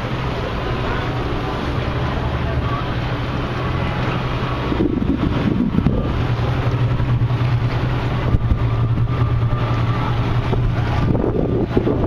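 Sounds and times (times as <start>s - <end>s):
boat engine drone: 0.0s - 12.0s
wind buffeting microphone: 3.4s - 12.0s.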